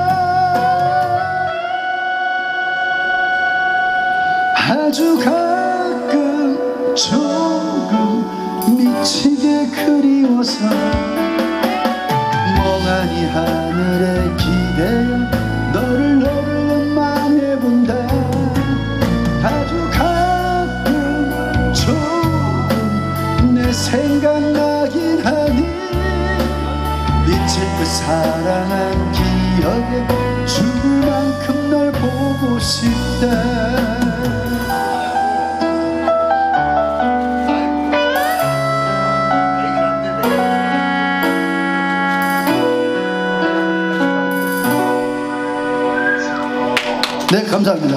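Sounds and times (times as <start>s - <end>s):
man singing into microphone: 0.0s - 2.2s, 4.4s - 36.2s
backing track bass and drums: 10.4s - 36.1s.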